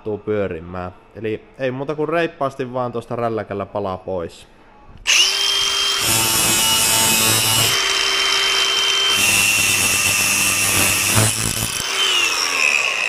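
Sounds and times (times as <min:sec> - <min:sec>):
angle grinder cutting metal: 0:05.1 - 0:13.0
grinder winding down: 0:05.1 - 0:13.0.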